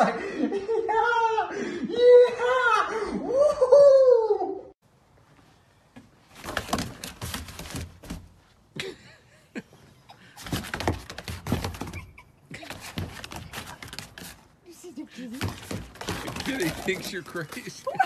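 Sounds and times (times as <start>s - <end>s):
dog paws thumping on wooden deck: 6.4s - 8.4s, 10.4s - 14.5s, 15.3s - 18.0s.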